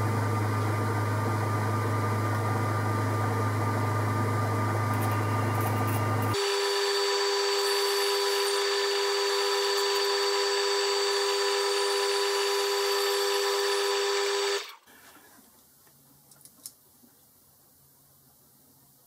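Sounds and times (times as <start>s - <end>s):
lathe motor whining: 0.0s - 14.8s.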